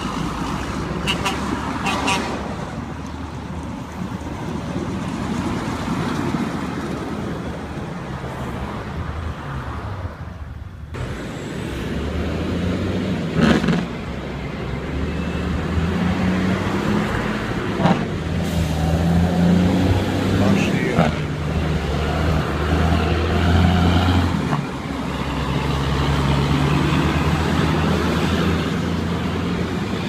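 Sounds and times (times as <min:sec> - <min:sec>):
concrete mixer trucks passing: 0:00.0 - 0:30.0
truck diesel engine drone: 0:10.5 - 0:30.0.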